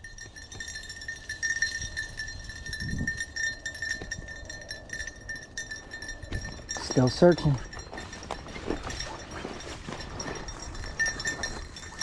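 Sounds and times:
footsteps: 5.9s - 12.0s
dry brush crackling and rustling: 7.0s - 12.0s.

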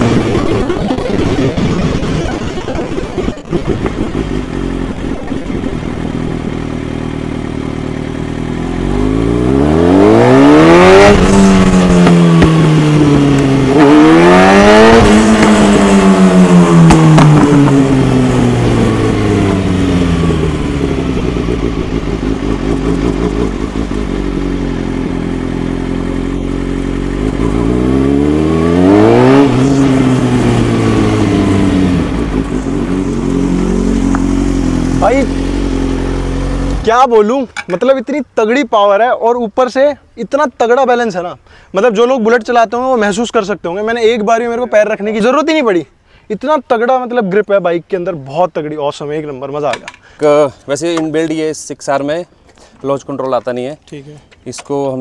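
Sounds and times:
motorcycle engine revving: 0.0s - 37.7s.

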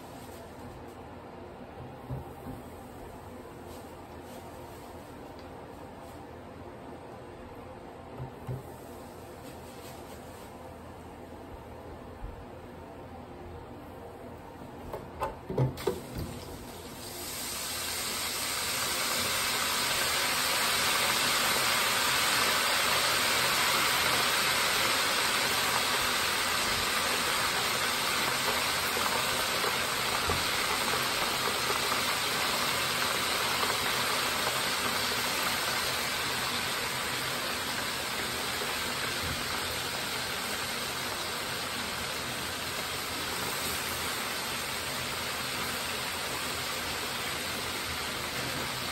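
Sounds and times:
oil sizzling in deep fryer: 15.5s - 48.9s.

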